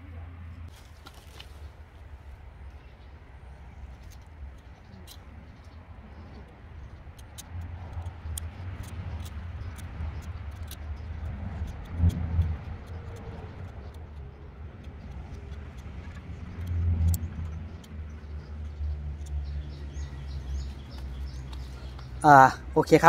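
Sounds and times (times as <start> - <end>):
knife shaving wood: 7.0 - 19.6.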